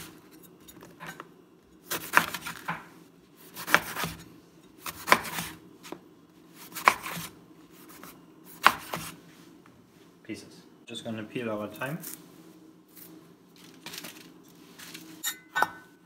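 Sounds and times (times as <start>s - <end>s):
cleaver chopping on cutting board: 1.9s - 2.9s, 3.6s - 4.2s, 4.8s - 5.5s, 6.6s - 7.3s, 8.6s - 9.2s.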